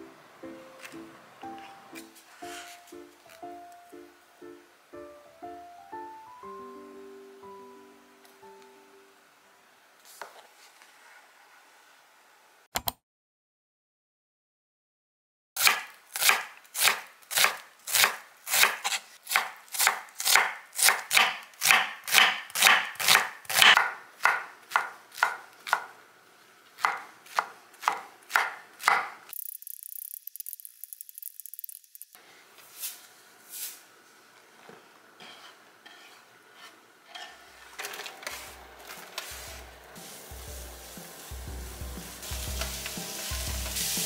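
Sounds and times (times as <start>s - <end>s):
knife chopping on wooden board: 15.6s - 25.9s, 26.8s - 29.2s.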